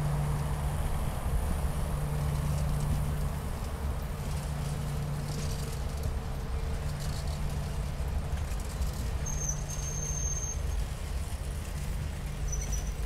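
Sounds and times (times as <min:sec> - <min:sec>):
train wheels rumbling on rails: 0:00.0 - 0:13.0
high wheel squeal: 0:09.2 - 0:10.8, 0:12.4 - 0:13.0.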